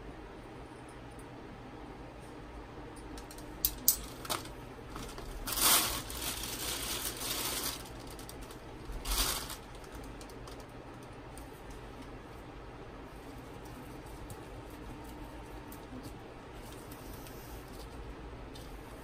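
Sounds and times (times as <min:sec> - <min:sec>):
light clicks of small parts: 0:02.9 - 0:04.6
rustling crinkling: 0:04.0 - 0:12.4.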